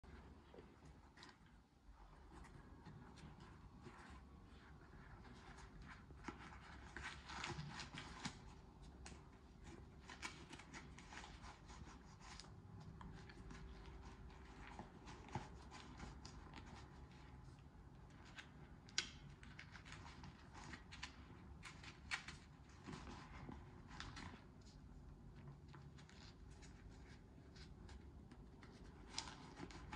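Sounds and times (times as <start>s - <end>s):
glove rustling and rubbing: 0.1s - 18.8s.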